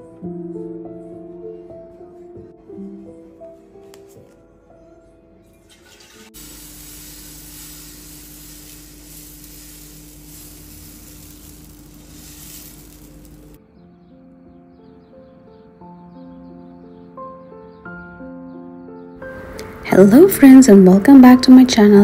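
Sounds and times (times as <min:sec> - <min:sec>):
soft music: 0:00.0 - 0:22.0
batter hissing on hot pan: 0:05.8 - 0:13.6.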